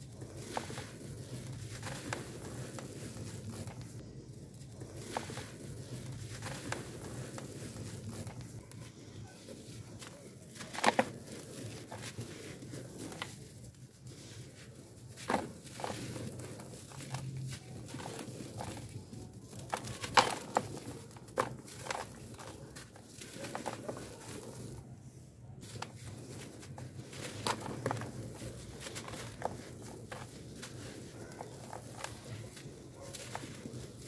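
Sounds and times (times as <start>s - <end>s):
powder rustling as it falls: 0.0s - 8.8s, 25.6s - 34.0s
charcoal crumbled by hand: 0.0s - 24.8s, 25.6s - 34.0s
chunks crunching: 14.5s - 24.8s, 25.6s - 34.0s.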